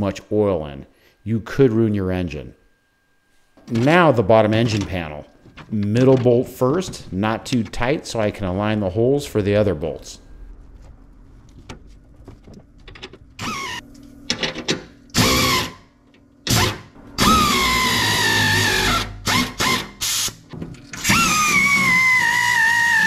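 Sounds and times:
power tool whining: 13.4s - 13.8s, 15.1s - 15.8s, 16.5s - 23.0s.

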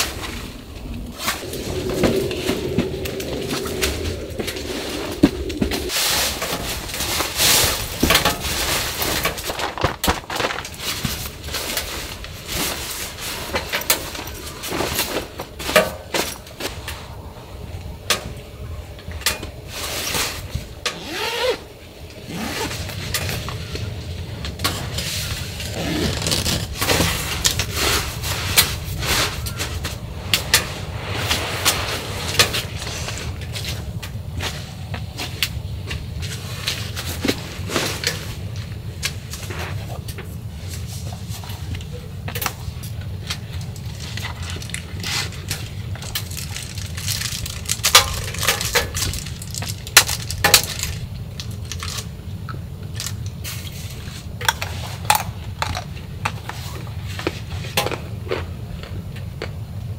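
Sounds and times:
nylon sleeping bag rustling: 0.0s - 17.1s, 24.8s - 35.0s
low steady hum: 0.0s - 59.9s.

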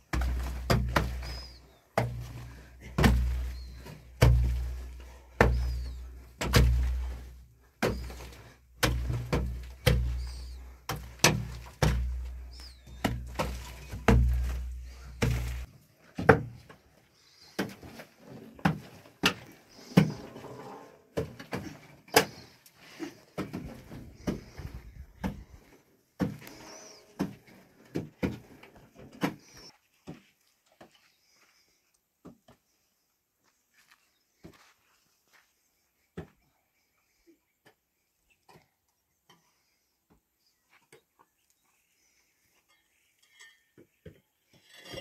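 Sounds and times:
light sharp knocks and scrapes: 17.5s - 21.4s.

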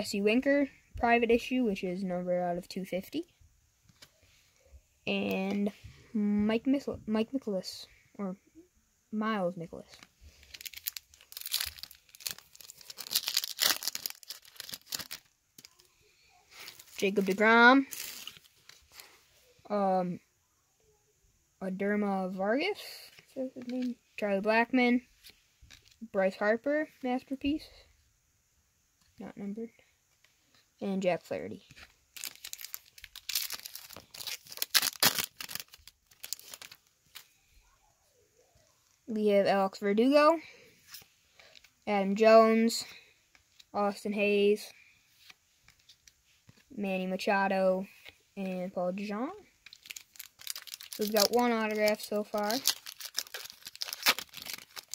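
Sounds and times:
foil wrapper tearing and crinkling: 10.4s - 15.9s, 16.5s - 18.8s, 32.2s - 37.3s, 49.6s - 54.9s.

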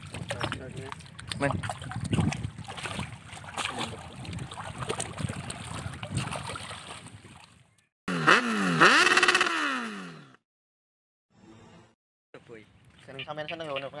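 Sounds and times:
water splashing and sloshing: 0.0s - 7.9s.

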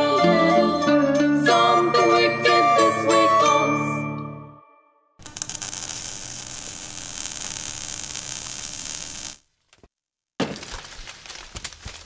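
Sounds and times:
hissing crackling sound effect: 5.2s - 9.4s.

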